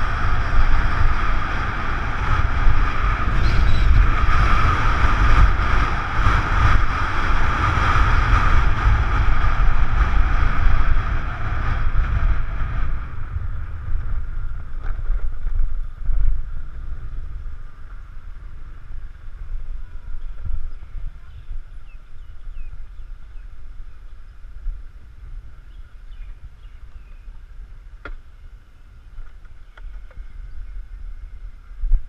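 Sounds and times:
motorbike engine running: 0.0 - 16.4
wind rumbling on microphone: 0.0 - 32.0.

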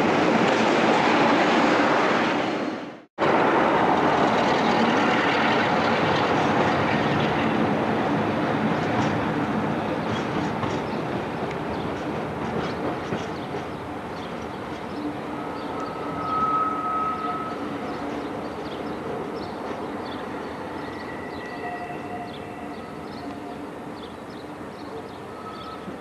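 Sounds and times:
diesel locomotive engine: 0.0 - 26.0
high steady wheel squeal: 14.9 - 18.3, 20.4 - 23.7, 25.2 - 26.0.

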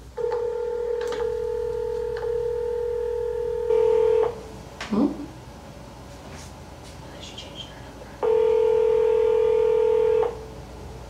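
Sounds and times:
phone call tone: 0.2 - 4.4, 8.2 - 10.4.

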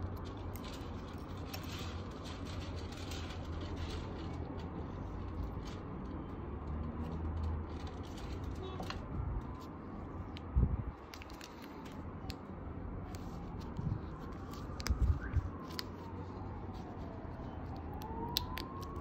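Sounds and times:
distant siren wailing: 8.5 - 11.0, 12.0 - 19.0
small parts clicking: 17.8 - 19.0.

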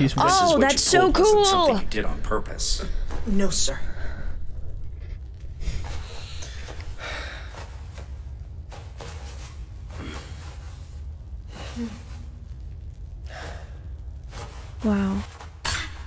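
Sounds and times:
low steady hum: 0.0 - 16.0
person breathing: 2.8 - 8.2, 9.9 - 12.3, 13.2 - 14.4.

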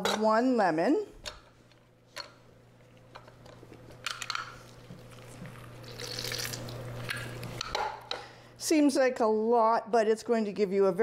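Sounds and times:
juice squelching: 4.6 - 7.5.

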